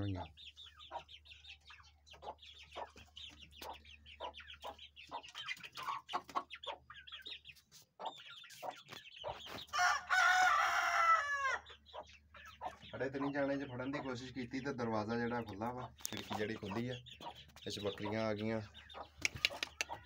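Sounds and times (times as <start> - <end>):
chickens clucking: 0.0 - 20.0
rooster crowing loudly: 9.7 - 11.6.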